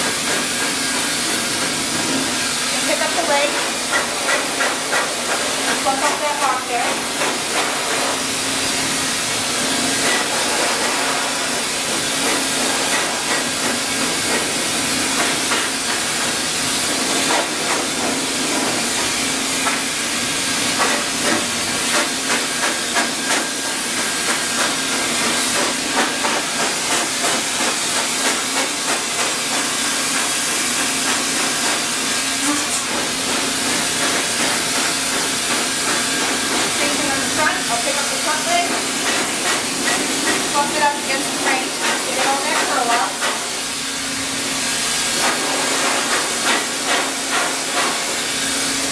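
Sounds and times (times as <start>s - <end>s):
dryer blowing air hiss: 0.0s - 48.9s.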